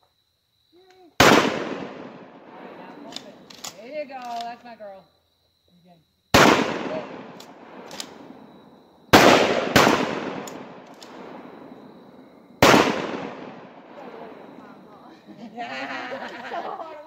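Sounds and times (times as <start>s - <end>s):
rifle shots echoing: 1.2s - 3.8s, 6.3s - 14.9s.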